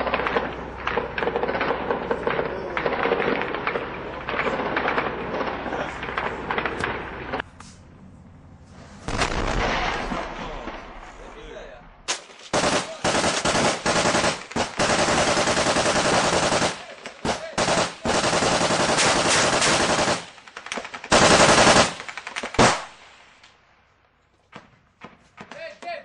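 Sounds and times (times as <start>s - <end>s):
machine-gun fire bursts: 0.0s - 7.0s, 12.2s - 23.0s
loud gunshot: 9.1s - 11.1s.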